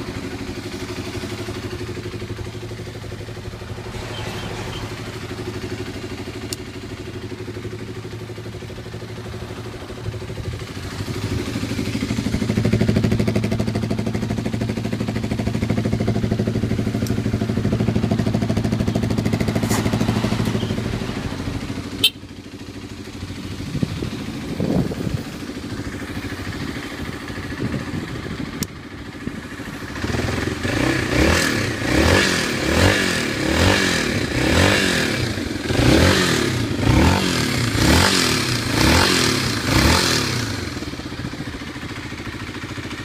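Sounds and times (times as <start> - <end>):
motorcycle engine idling and revving: 0.0 - 43.0.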